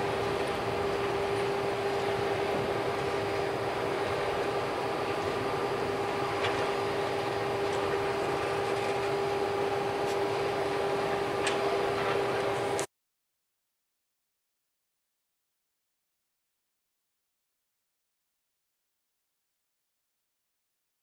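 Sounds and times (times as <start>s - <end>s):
train wheels rumbling on rails: 0.0s - 12.8s
steady hum: 0.0s - 12.9s.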